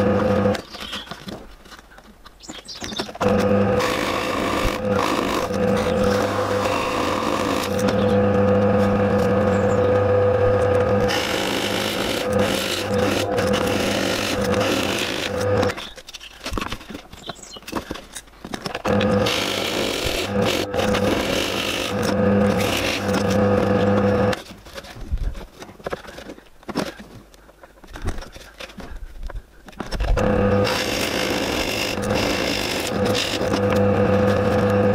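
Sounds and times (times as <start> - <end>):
pillar drill motor running: 0.0 - 1.0, 3.0 - 15.8, 18.6 - 24.4, 30.1 - 34.9
drill bit scraping into plywood: 0.0 - 1.4, 2.8 - 27.0, 29.8 - 34.9
faint handling sounds: 15.7 - 18.8.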